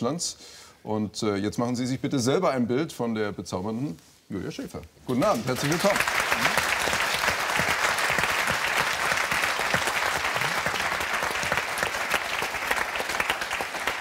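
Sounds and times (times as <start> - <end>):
audience applauding: 5.1 - 14.0.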